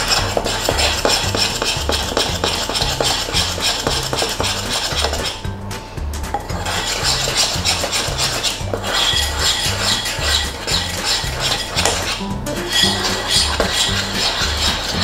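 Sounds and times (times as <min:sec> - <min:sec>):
background music with bass line: 0:00.0 - 0:15.0
spoon scraping ceramic bowl: 0:06.4 - 0:15.0.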